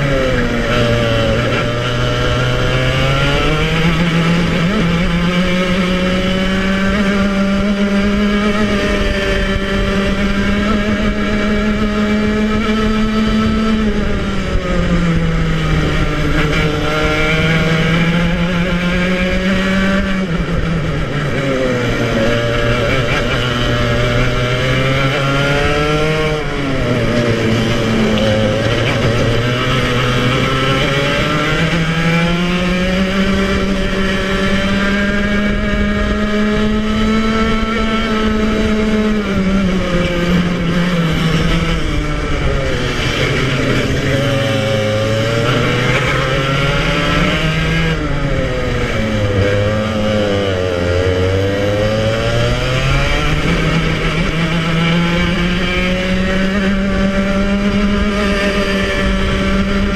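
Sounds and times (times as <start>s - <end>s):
kart engine revving: 0.0s - 59.9s.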